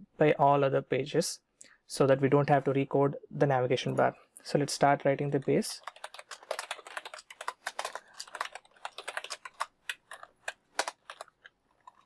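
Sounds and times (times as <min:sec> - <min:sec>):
keyboard typing clicks: 0:05.8 - 0:12.0.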